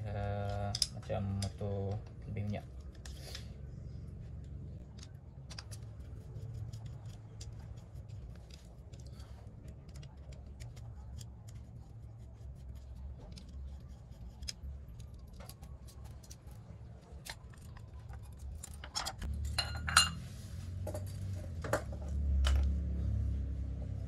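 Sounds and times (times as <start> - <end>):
metal parts clicking and clinking: 17.2 - 20.2.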